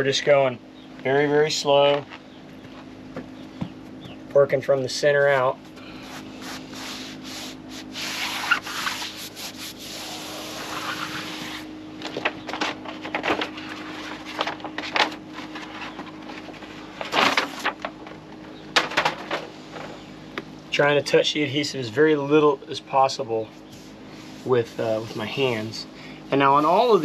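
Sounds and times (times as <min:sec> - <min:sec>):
hand rubbing foam pad: 0:05.9 - 0:11.7, 0:26.4 - 0:27.0.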